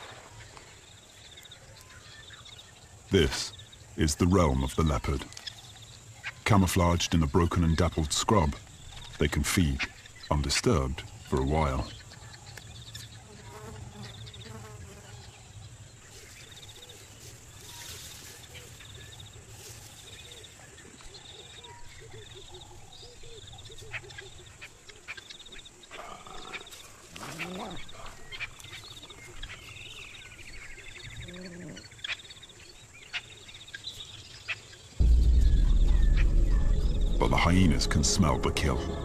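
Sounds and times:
insects chirping: 0.0s - 39.0s
low animal calls: 31.2s - 31.9s.

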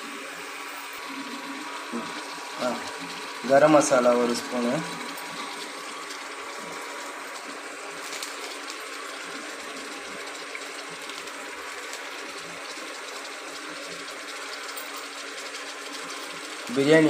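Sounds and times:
vegetables sizzling in a pot: 0.0s - 17.0s.

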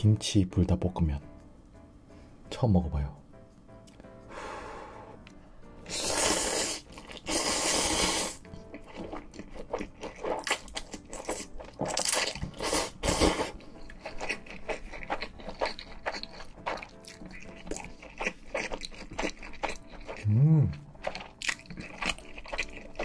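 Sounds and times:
slurping noodles: 5.9s - 9.2s, 12.5s - 13.6s
wet chewing: 5.9s - 23.0s.

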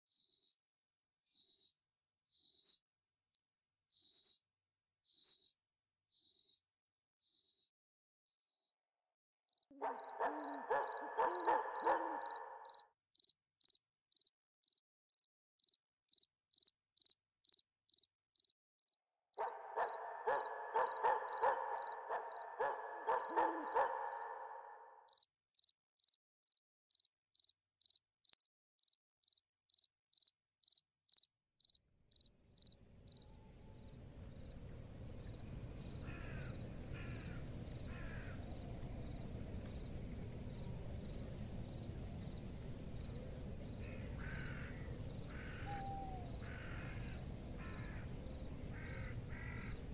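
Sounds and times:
cricket chirping: 0.2s - 0.6s, 1.3s - 2.8s, 3.9s - 4.4s, 5.1s - 6.6s, 7.2s - 7.7s, 9.5s - 14.8s, 15.6s - 49.9s
wash of noise: 32.8s - 49.9s.

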